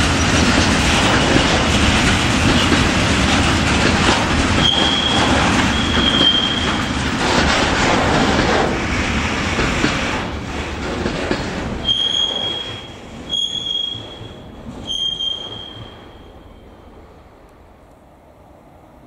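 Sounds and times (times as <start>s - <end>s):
train wagons rumbling past: 0.0s - 17.8s
train wheels squealing: 4.6s - 6.9s, 11.8s - 16.7s.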